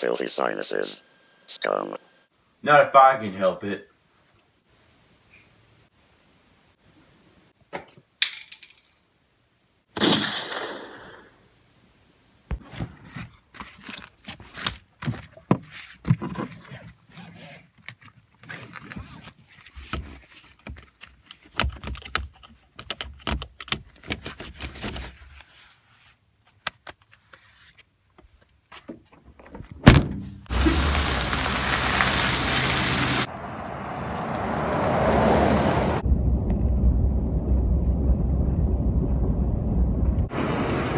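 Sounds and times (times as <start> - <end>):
loud thud: 29.8 - 30.5
car driving: 29.9 - 40.9.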